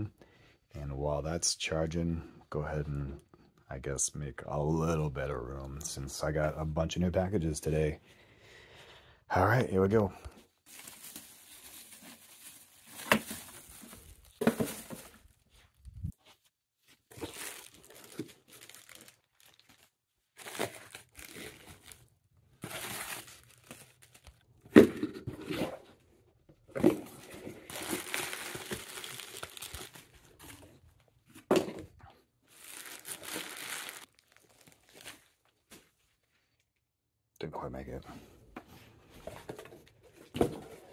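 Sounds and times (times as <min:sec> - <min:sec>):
plastic packing crinkling: 0:10.7 - 0:15.8, 0:17.1 - 0:24.5, 0:27.1 - 0:30.8, 0:32.5 - 0:35.5
packages thumping down: 0:12.8 - 0:15.3.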